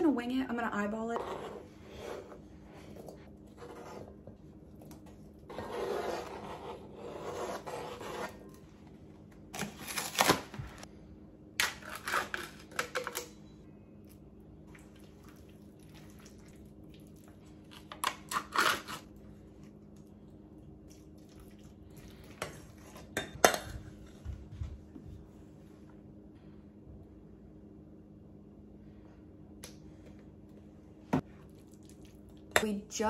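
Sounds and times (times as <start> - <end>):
knife scraping cutting board: 1.2 - 2.4, 3.5 - 4.2, 5.5 - 8.5.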